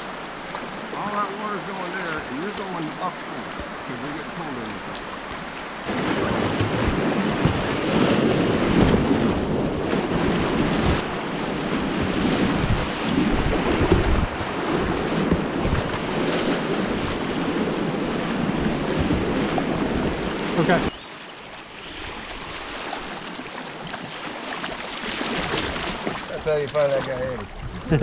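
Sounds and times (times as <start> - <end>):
rushing river water: 0.0 - 28.0
wind buffeting microphone: 5.9 - 21.0, 25.3 - 28.0.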